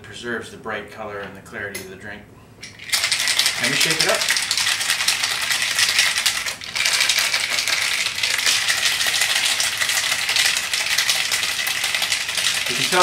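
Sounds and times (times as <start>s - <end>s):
ice rattling in cocktail shaker: 2.6s - 13.0s.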